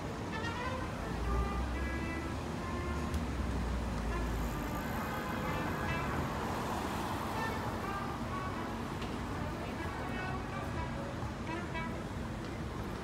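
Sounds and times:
cars driving past: 3.3s - 9.3s.

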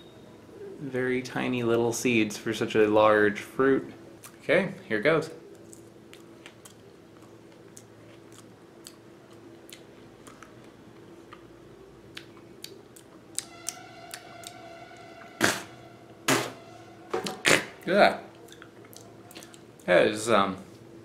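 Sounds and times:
person chewing crisp fruit: 5.5s - 14.6s, 17.4s - 19.9s
high-pitched tone: 13.3s - 18.3s
short loud sound: 13.4s - 17.8s.

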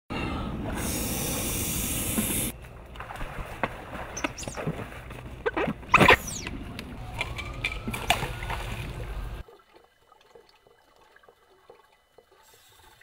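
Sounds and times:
steady hiss: 0.8s - 2.6s.

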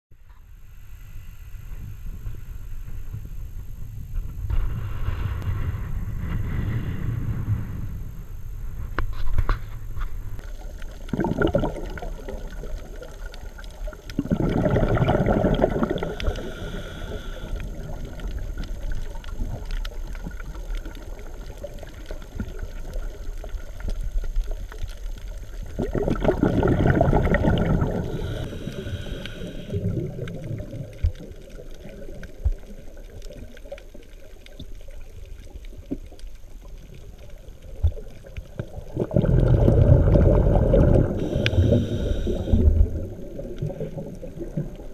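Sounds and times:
muffled underwater rumble: 0.2s - 44.9s
rushing bubbles from diver exhaling: 10.8s - 23.6s, 25.5s - 33.1s, 37.9s - 44.9s.

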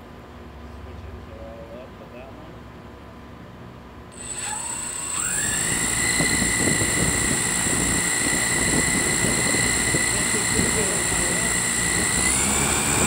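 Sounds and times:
drone motors whining: 4.2s - 13.0s
propeller wash rushing: 5.2s - 13.0s.

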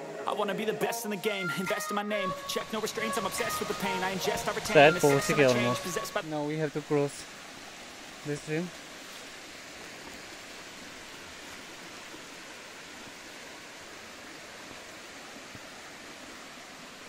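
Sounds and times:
water rushing: 0.0s - 17.0s.

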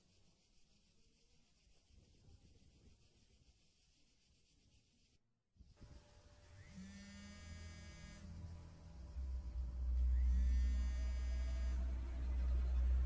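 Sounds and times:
deep low drone: 5.8s - 13.0s.

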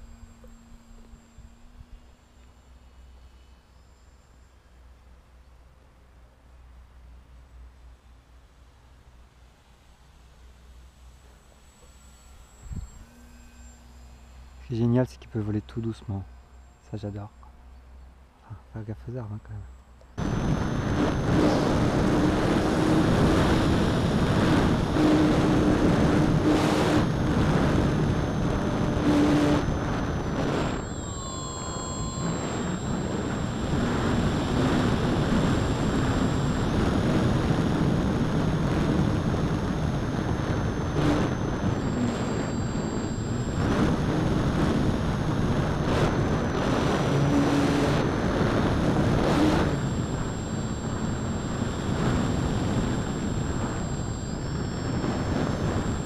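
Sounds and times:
model glider motor whine: 0.0s - 56.0s
wind rushing over microphone: 20.2s - 56.0s.

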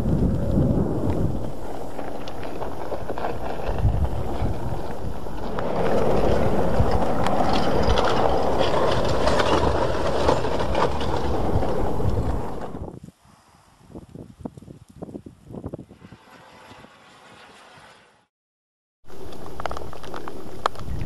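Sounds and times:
lava crust crackling and clinking: 0.0s - 12.9s, 19.1s - 21.0s
wind rumbling on microphone: 0.0s - 18.0s, 19.1s - 21.0s.

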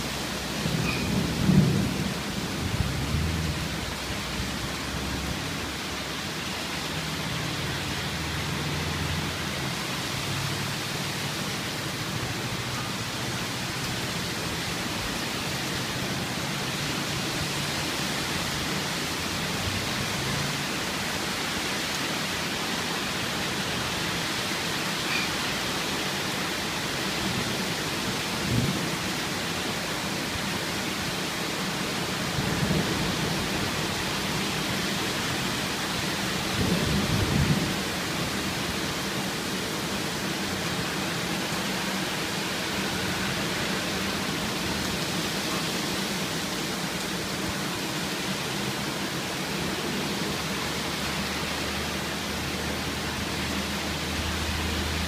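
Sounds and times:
heavy rain pouring: 0.0s - 55.0s
low thunder rumbles: 0.6s - 4.0s, 36.5s - 37.9s.

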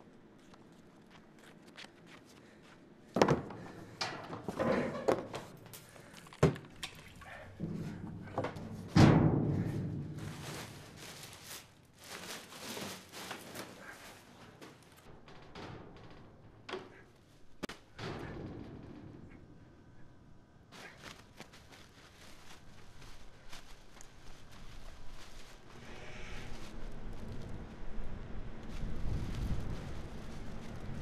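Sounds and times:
hollow knocks in metal dumpster: 7.6s - 10.8s
garbage bag rustling: 9.6s - 15.1s, 20.7s - 31.0s.

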